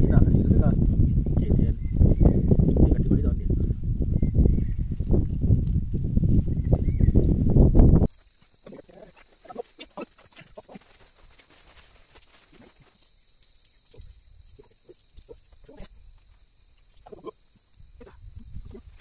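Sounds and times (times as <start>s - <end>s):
pulsing insect call: 6.5s - 19.0s
insects trilling: 8.0s - 19.0s
plastic sheet rustling: 9.2s - 14.2s.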